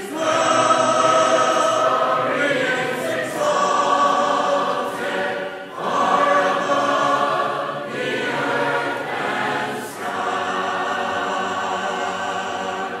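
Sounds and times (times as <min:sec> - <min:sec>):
mixed choir singing a hymn: 0:00.0 - 0:13.0.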